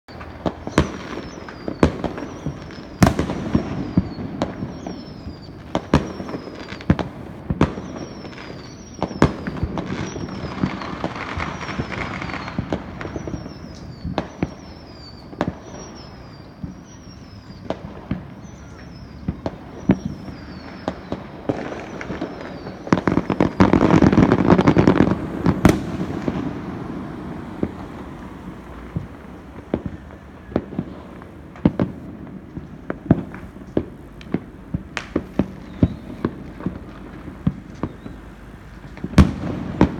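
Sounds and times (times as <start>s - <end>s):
fireworks bangs: 0.1s - 39.9s
fireworks crackling: 0.1s - 39.9s.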